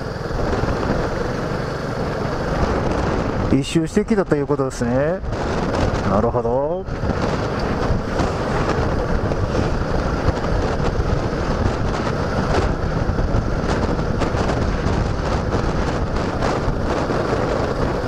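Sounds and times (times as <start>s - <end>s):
motorcycle engine and road noise: 0.0s - 18.0s
wind buffeting microphone: 0.0s - 18.0s.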